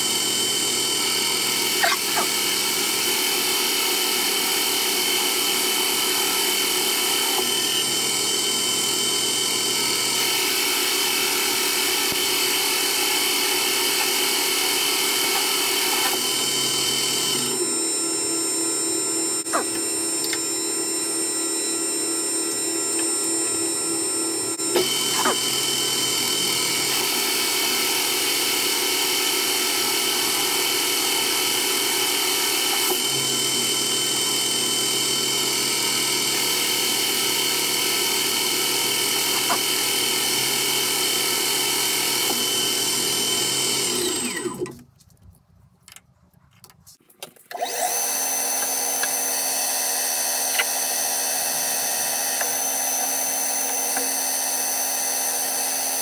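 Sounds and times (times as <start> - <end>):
metal lathe humming and whining: 0.0 - 44.7, 47.6 - 56.0.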